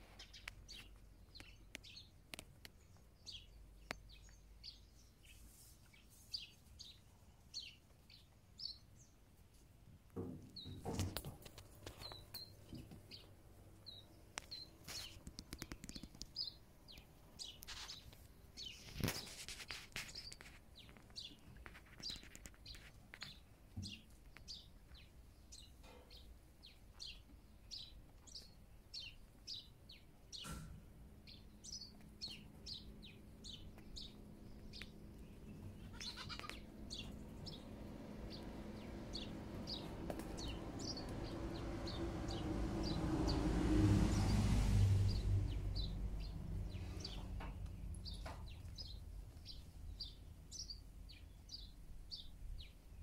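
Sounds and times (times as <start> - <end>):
small birds chirping: 0.0 - 43.5, 44.1 - 53.0
goat bleating: 35.8 - 36.7
low engine sound: 36.5 - 49.6.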